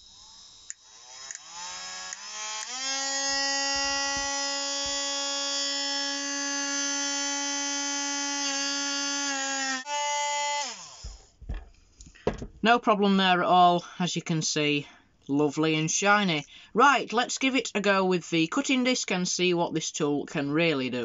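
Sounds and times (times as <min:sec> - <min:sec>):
rotary tool motor whine: 0:00.0 - 0:11.4.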